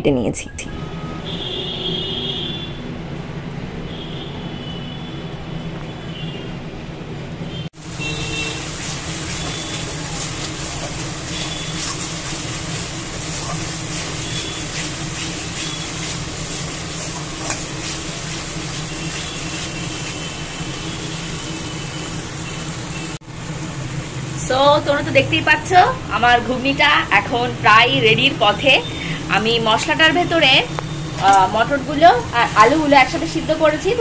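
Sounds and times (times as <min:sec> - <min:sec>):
spice paste sizzling in a wok: 0:07.8 - 0:27.4, 0:28.0 - 0:34.0
spatula scraping a pan: 0:08.0 - 0:20.4.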